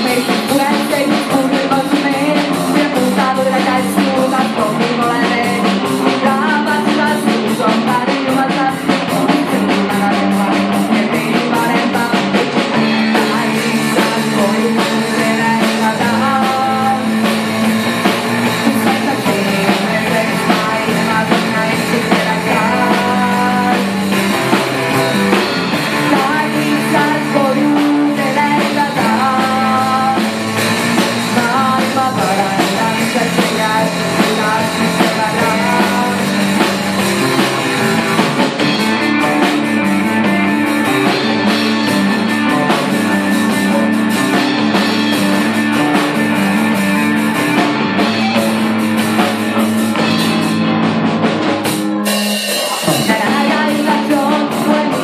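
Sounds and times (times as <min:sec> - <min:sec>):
woman singing: 0:00.0 - 0:38.6, 0:52.7 - 0:55.0
bass guitar: 0:00.0 - 0:55.0
distorted electric guitar: 0:00.0 - 0:55.0
drum kit: 0:00.0 - 0:55.0.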